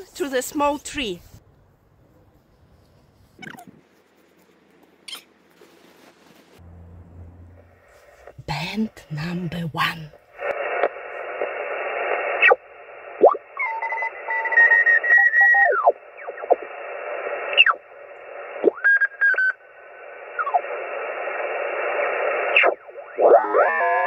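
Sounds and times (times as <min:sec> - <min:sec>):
shortwave radio hiss: 0:07.5 - 0:24.0
gliding radio whistles: 0:10.4 - 0:24.0.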